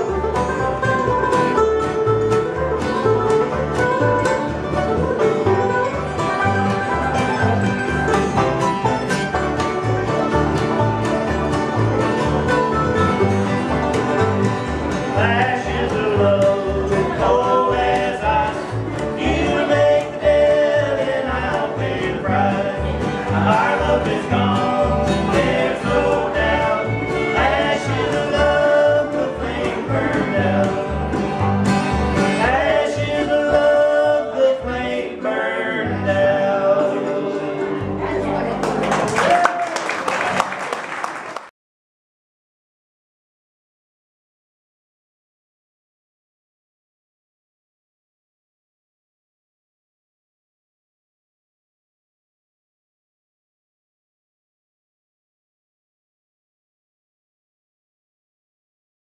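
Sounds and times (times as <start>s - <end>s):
acoustic bluegrass band playing: 0.0s - 39.3s
man and woman singing in harmony: 15.2s - 18.6s, 19.2s - 31.1s, 32.4s - 37.9s.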